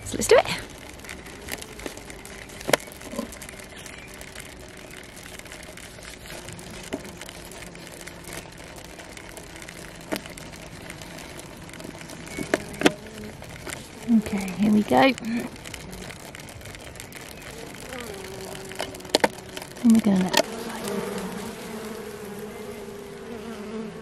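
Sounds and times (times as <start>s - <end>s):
honey bees humming: 0.0s - 24.0s
drawing pins clicking: 0.1s - 22.4s.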